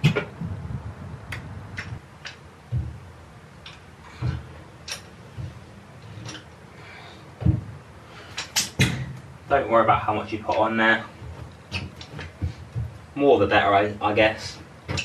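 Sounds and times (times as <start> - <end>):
dull knocks: 2.7 - 3.0, 4.1 - 4.6, 7.4 - 7.8, 11.1 - 13.1.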